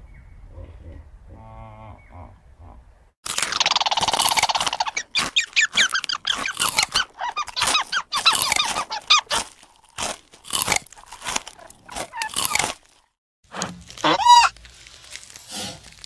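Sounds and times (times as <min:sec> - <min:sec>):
squirrel squeaking and chattering: 0:03.4 - 0:09.4, 0:14.0 - 0:14.6.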